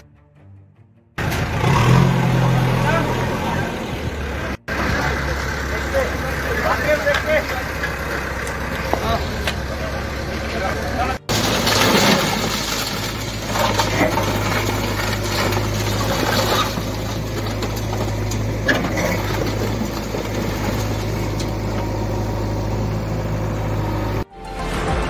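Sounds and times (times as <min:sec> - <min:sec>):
diesel engine running: 0:01.2 - 0:24.9
rubble crumbling and crashing: 0:06.2 - 0:22.7.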